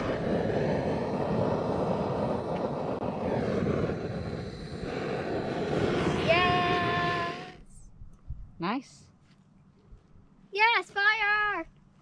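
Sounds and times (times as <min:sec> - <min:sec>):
propane torch flame hissing: 0:00.0 - 0:07.8.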